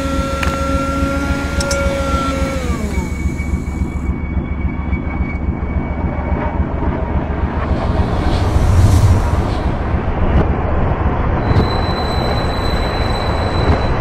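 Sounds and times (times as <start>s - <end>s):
machine motor whine: 0.0s - 9.8s
low factory rumble: 0.0s - 14.0s.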